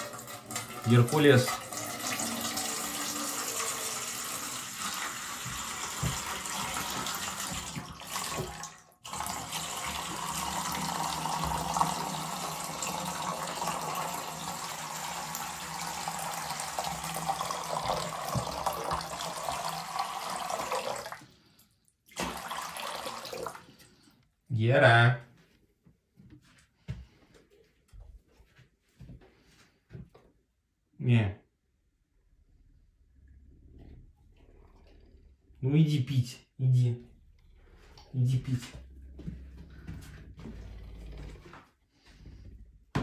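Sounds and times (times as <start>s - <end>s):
water running from a tap: 0.0s - 21.4s, 22.1s - 24.0s.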